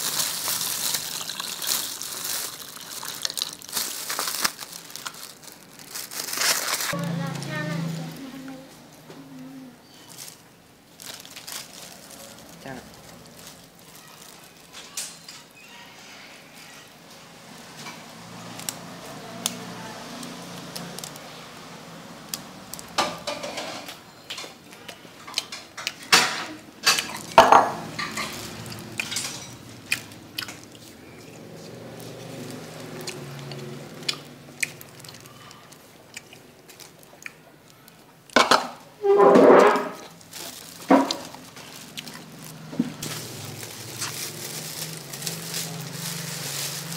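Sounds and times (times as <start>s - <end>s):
plastic packet tearing: 0.0s - 7.5s, 10.1s - 14.8s, 38.4s - 46.9s
soft background murmur: 4.7s - 46.9s.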